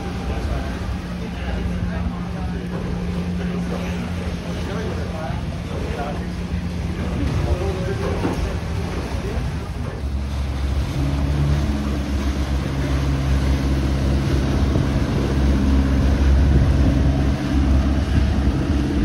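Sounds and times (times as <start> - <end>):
boat engine humming: 0.0 - 19.0
choppy water wash: 0.0 - 19.0
wind noise on microphone: 12.6 - 19.0.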